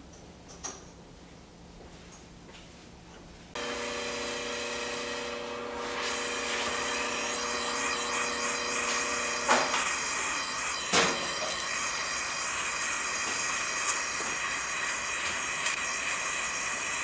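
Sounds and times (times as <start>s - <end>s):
gas torch hissing: 3.6s - 17.0s.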